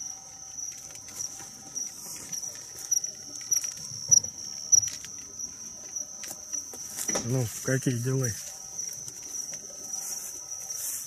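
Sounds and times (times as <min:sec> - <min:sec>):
crickets chirping: 0:00.0 - 0:11.0
brushing through leaves: 0:09.9 - 0:11.0.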